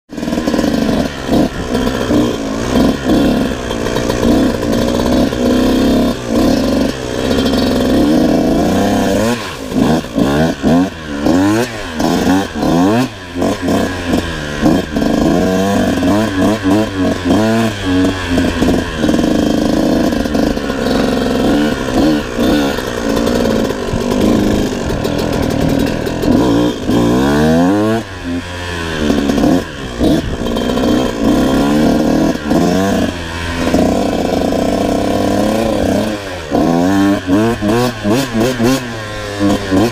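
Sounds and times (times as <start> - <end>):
dirt bike engine revving: 0.1 - 39.9.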